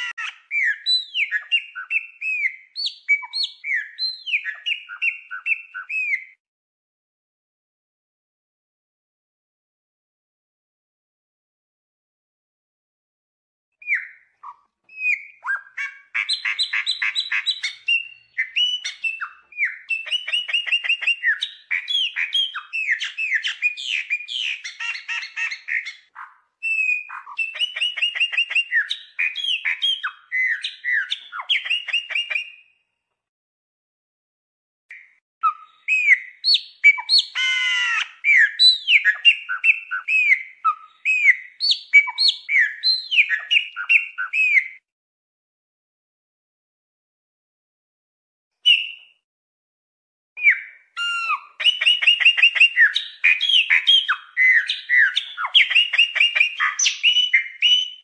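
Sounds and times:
bird singing whistled notes: 0.0 - 6.4, 13.8 - 32.8, 34.9 - 44.8, 48.7 - 49.1, 50.4 - 58.0.

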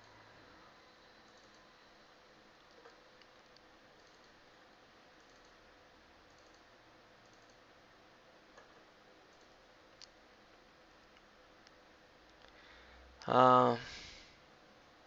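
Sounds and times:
faint room hiss: 0.0 - 15.0
computer mouse clicks: 1.2 - 1.7, 2.6 - 4.4, 5.2 - 5.6, 6.3 - 7.6, 8.6 - 10.2.

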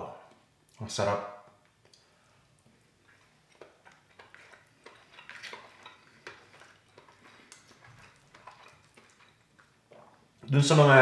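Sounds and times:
fork and spoon scraping: 3.2 - 9.7.

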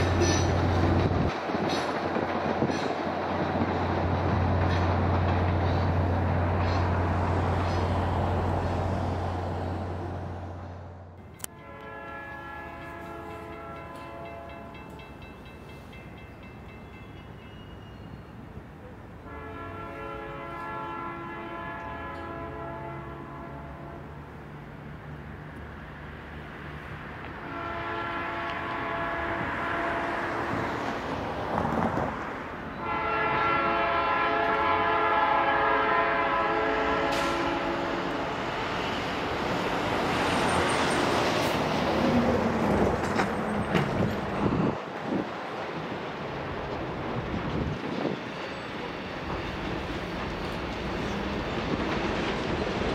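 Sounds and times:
rumble of locomotives: 0.0 - 52.9
train horn blasts: 11.4 - 14.8, 19.2 - 24.3, 27.4 - 30.7, 32.7 - 38.9.

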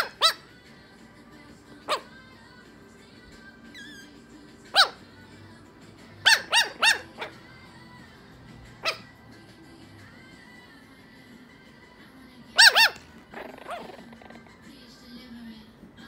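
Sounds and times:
puppy yappy barks: 0.0 - 0.5, 1.8 - 2.2, 4.6 - 5.1, 6.2 - 7.5, 8.8 - 9.2, 12.6 - 14.2.

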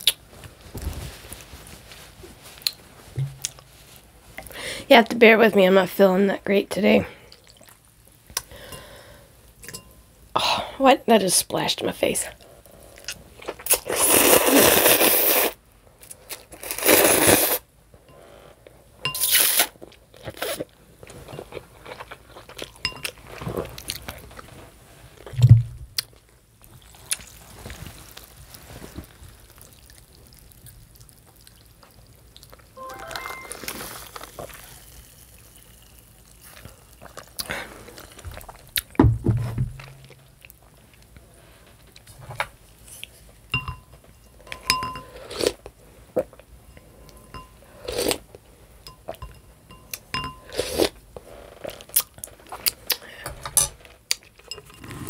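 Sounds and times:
dull thuds: 3.2 - 3.5, 38.9 - 40.2
chewing and mouth sounds: 7.3 - 8.5, 29.5 - 38.9
slurping noodles: 13.7 - 15.6.

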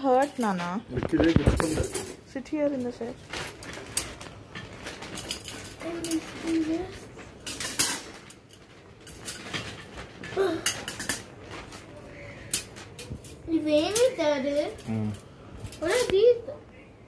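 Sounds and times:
wire dish rack clattering: 7.4 - 11.4.

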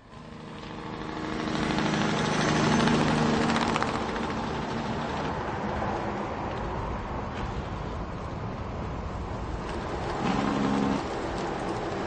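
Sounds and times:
truck driving past: 0.0 - 5.8, 9.8 - 12.0.

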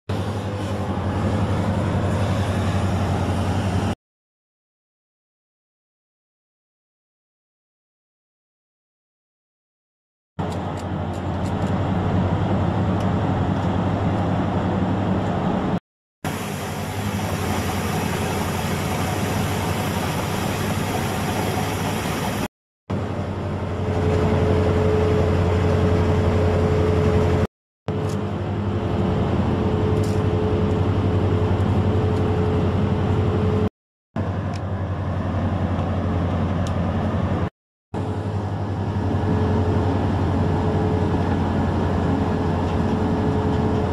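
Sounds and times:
ship engines humming: 0.1 - 4.0, 16.3 - 43.9.

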